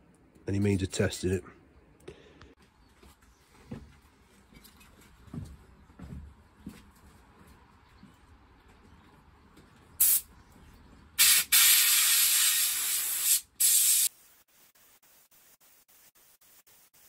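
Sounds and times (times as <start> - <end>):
hose spray gun hissing: 11.2 - 14.1.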